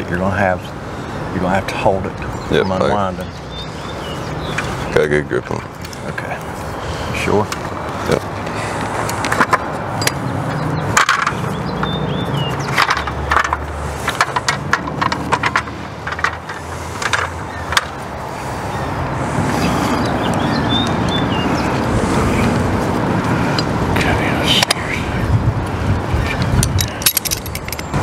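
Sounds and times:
wind rumbling on microphone: 0:07.6 - 0:28.0.

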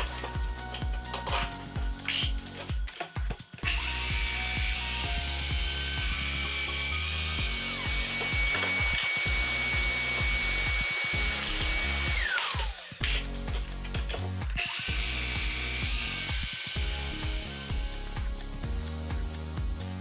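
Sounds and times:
background music: 0:00.0 - 0:20.0
dust extractor hiss: 0:03.6 - 0:13.1
joiner motor whine: 0:03.6 - 0:13.2.

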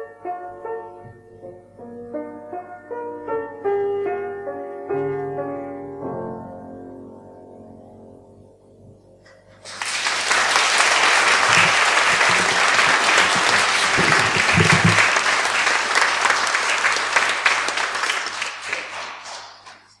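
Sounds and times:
audience applauding: 0:09.3 - 0:20.0.

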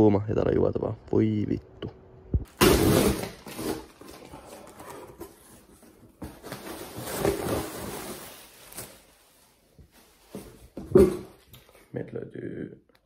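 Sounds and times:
cardboard flaps rustling: 0:02.5 - 0:09.1
cardboard box tearing open: 0:02.6 - 0:05.4.

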